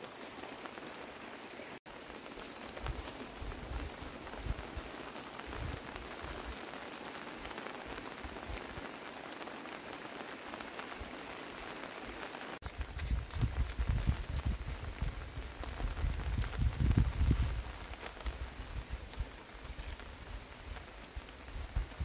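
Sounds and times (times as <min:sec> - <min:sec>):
steady rain: 0:00.0 - 0:22.0.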